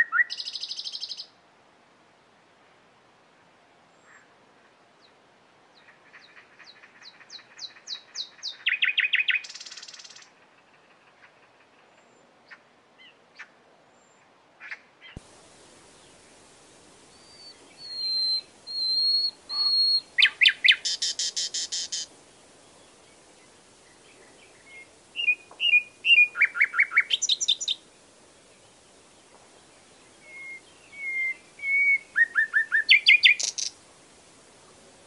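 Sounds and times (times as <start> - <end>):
nightingale singing: 0.0 - 1.4, 5.8 - 10.4, 15.0 - 33.8.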